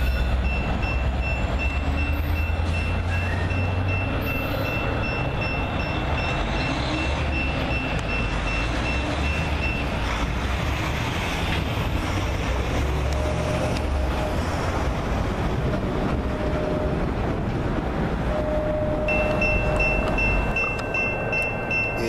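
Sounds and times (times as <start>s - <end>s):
diesel locomotive engine rumble: 0.0s - 22.0s
train wheels on rails: 0.0s - 22.0s
thin high steady tone: 18.3s - 22.0s.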